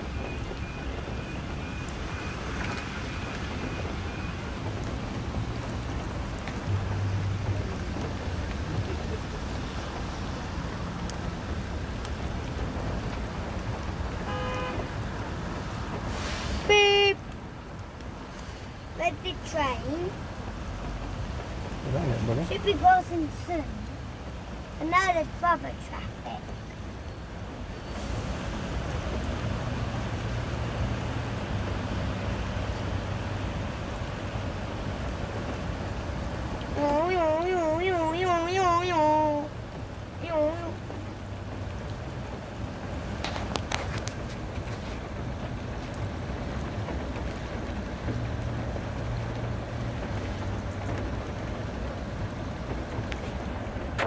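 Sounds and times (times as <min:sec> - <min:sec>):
road traffic hum: 0:00.0 - 0:54.0.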